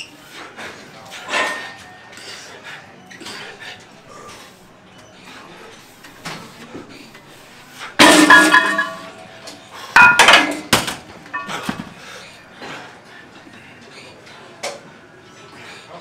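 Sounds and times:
metal weights clanging: 8.0s - 9.3s, 10.0s - 10.7s, 11.3s - 11.7s.

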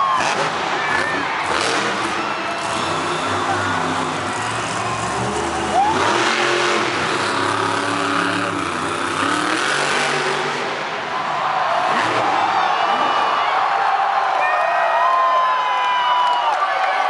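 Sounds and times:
monster truck engine revving: 0.0s - 11.1s, 11.7s - 13.2s.

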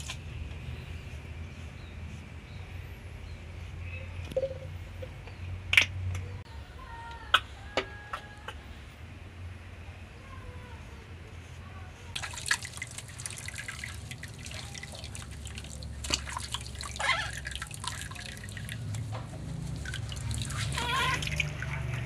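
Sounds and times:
water dripping and splashing in tub: 0.0s - 0.2s, 12.2s - 22.0s.

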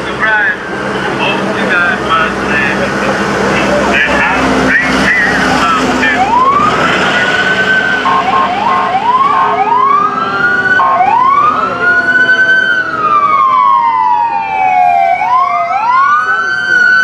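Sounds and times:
fire engine sirens: 0.0s - 17.0s.

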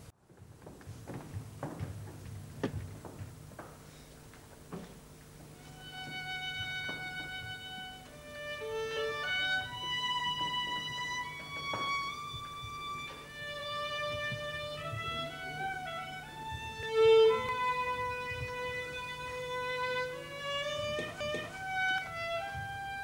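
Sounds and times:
violin playing long notes: 5.6s - 23.0s.

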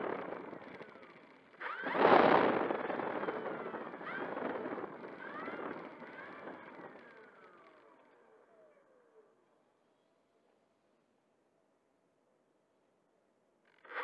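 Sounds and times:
electric motor and propeller whine: 0.0s - 9.2s.

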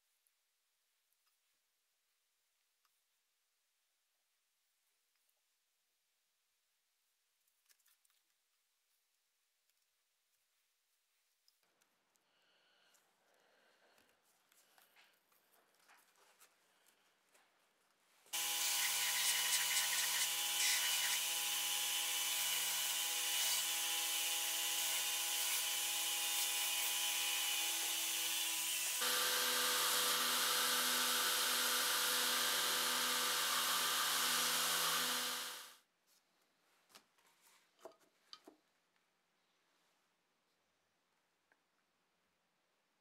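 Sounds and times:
faint clicks of hand work: 13.7s - 18.0s, 36.1s - 39.1s
belt grinder sanding leather: 18.4s - 35.8s.

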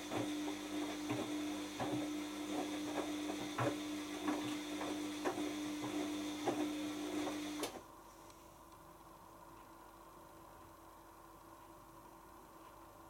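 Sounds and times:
washing machine motor hum: 0.0s - 8.0s.

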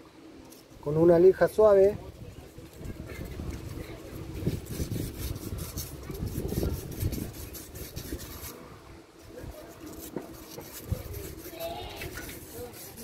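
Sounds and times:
sandpaper rubbing on metal: 2.7s - 8.6s, 9.2s - 13.0s.

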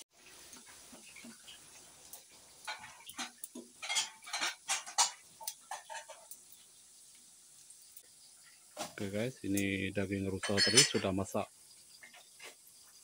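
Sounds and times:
meat sizzling in oil: 0.0s - 13.0s
spatula scraping a frying pan: 2.6s - 6.4s, 11.9s - 12.7s.

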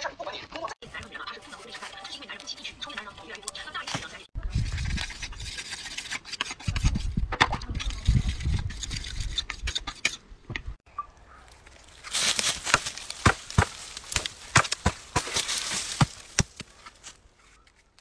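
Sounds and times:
knife scraping on whetstone: 4.8s - 7.0s
dry branches crackling: 11.0s - 18.0s.

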